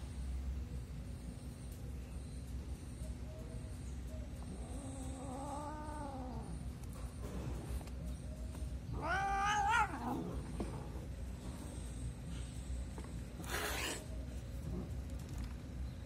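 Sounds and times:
cat meowing: 0:08.9 - 0:10.2.

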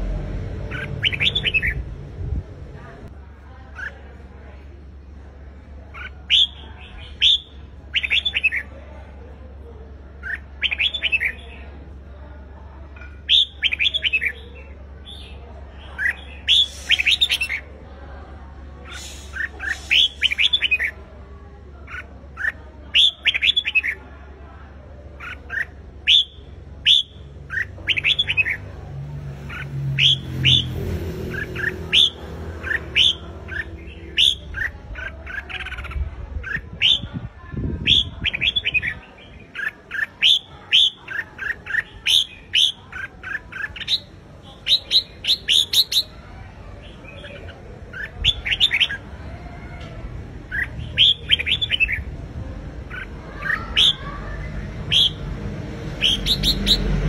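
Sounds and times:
low rumble: 0:00.0 - 0:03.2.

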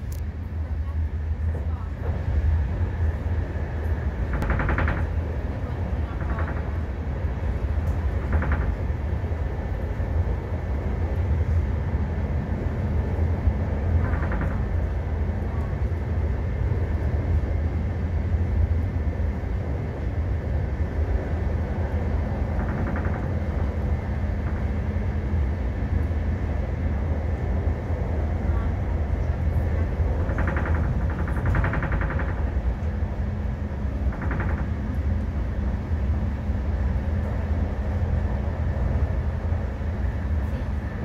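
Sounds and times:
train rumbling on track: 0:00.0 - 0:41.0.

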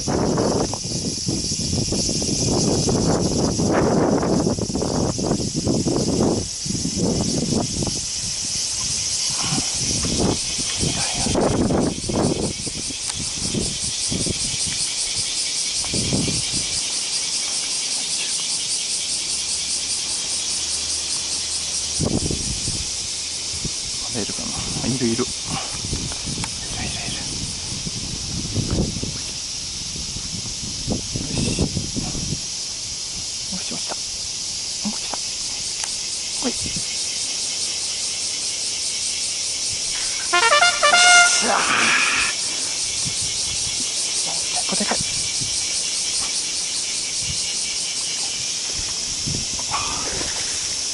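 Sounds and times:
cicadas buzzing: 0:00.0 - 0:50.9
high-pitched insect drone: 0:00.0 - 0:50.9.

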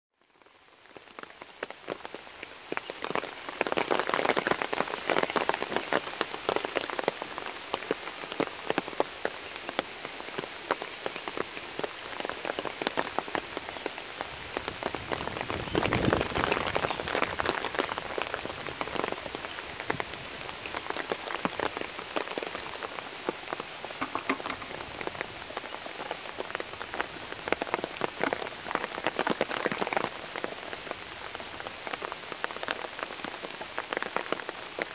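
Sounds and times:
rain falling on leaves: 0:00.1 - 0:34.9.

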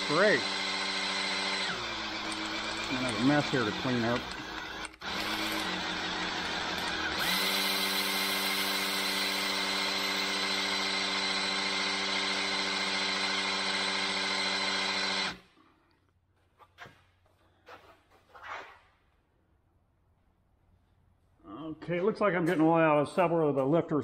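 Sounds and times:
electric drill running: 0:00.0 - 0:15.4.

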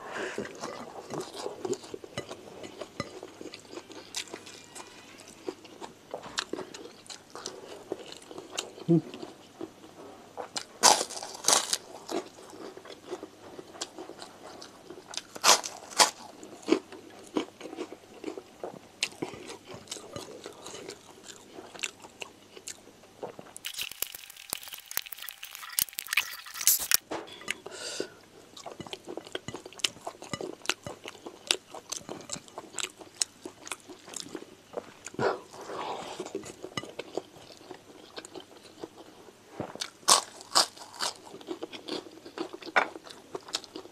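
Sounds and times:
person chewing food: 0:00.4 - 0:04.8, 0:05.4 - 0:09.3, 0:10.4 - 0:27.0, 0:28.6 - 0:35.6, 0:36.2 - 0:43.9
wet mouth sounds: 0:23.6 - 0:27.0.

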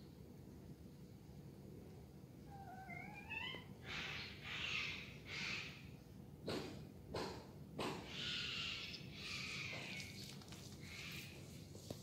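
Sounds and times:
cat meowing: 0:02.5 - 0:03.7.

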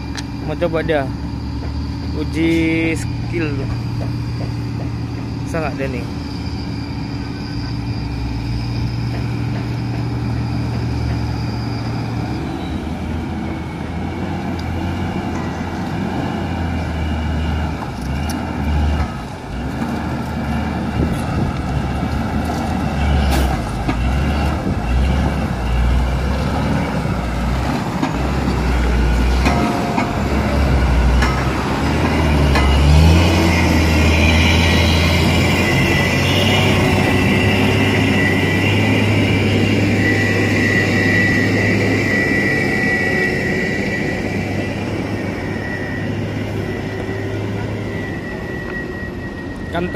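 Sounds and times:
diesel truck engine whining: 0:00.0 - 0:49.9
engine labouring with low rumble: 0:17.4 - 0:38.3.

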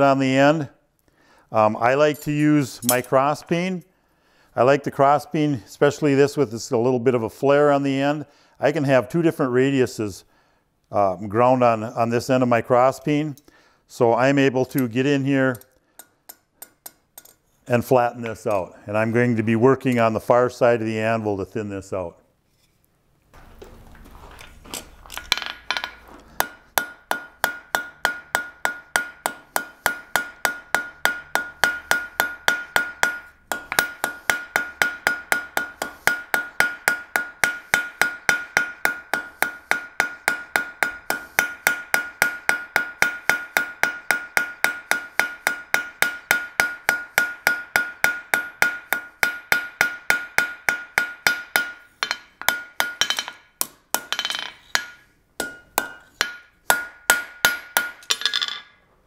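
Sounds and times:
hammer striking hot metal on anvil: 0:25.3 - 0:58.2.

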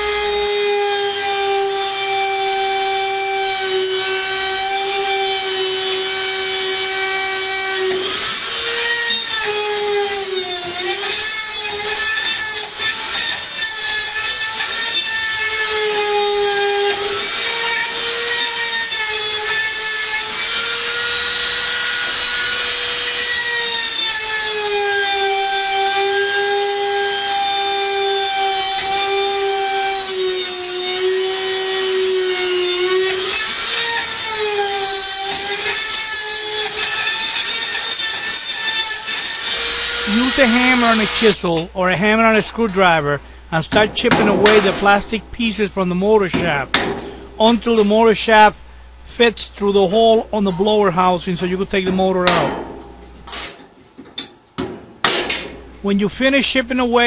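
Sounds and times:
rotary tool grinding plastic: 0:27.1 - 0:41.4.

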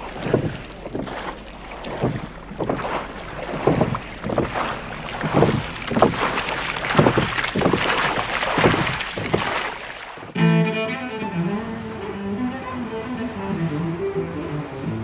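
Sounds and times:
water sloshing and lapping: 0:00.0 - 0:10.4
steady rushing noise: 0:11.2 - 0:15.0.

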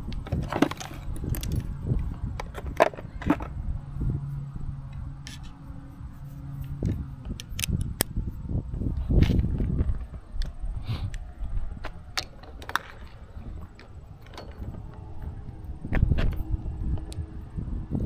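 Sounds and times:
low steady hum: 0:00.0 - 0:18.0
camera gear clicking and rattling: 0:00.2 - 0:03.6, 0:06.8 - 0:08.1.

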